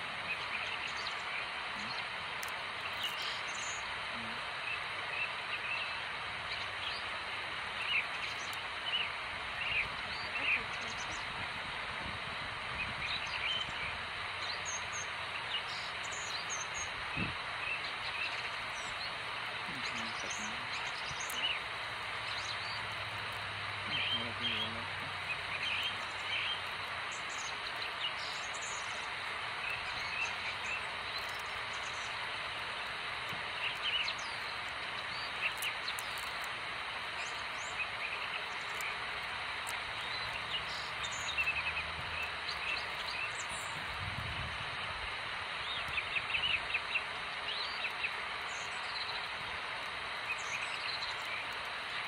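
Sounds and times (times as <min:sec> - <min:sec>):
steady background hiss: 0:00.0 - 0:52.0
high bird chirps: 0:14.4 - 0:43.9.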